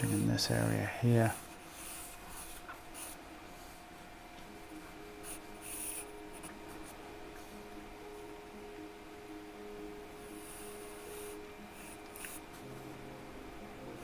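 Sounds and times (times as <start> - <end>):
pencil sketching on paper: 0.0 - 3.8, 4.8 - 7.7, 10.2 - 12.7.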